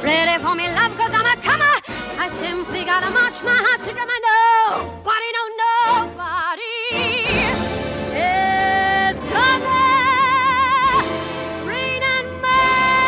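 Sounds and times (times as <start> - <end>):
woman singing with vibrato: 0.0 - 13.0
full orchestra playing: 6.9 - 13.0.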